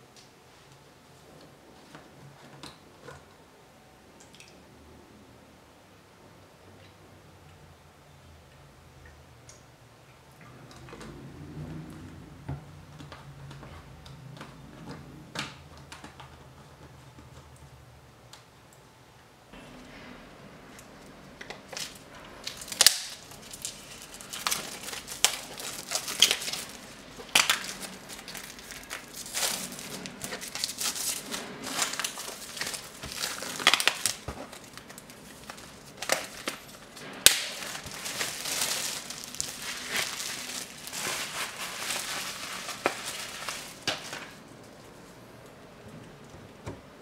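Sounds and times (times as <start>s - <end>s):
packaging crinkling and tearing: 21.5s - 44.5s.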